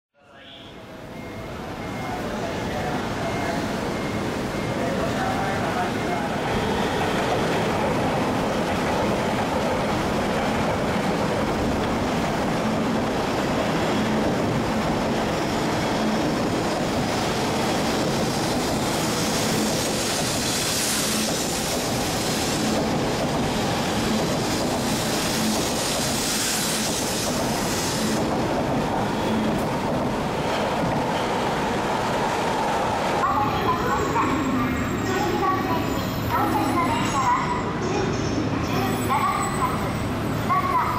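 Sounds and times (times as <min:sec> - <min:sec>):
train rumbling: 0:00.8 - 0:40.9
hiss of passing train cars: 0:01.0 - 0:40.9.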